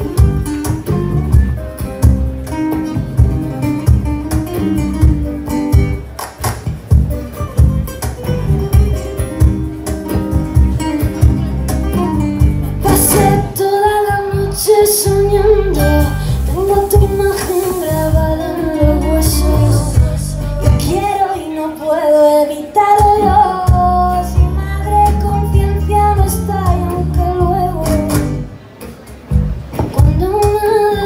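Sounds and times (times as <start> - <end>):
strummed acoustic guitars: 0.0 - 31.0
woman singing slow melody: 12.8 - 28.4, 29.8 - 31.0.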